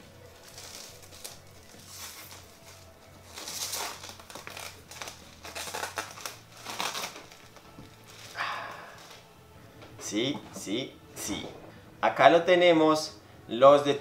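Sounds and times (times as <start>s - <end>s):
plastic shrink-wrap crinkling: 0.0s - 9.3s
quiet background music: 0.0s - 14.0s.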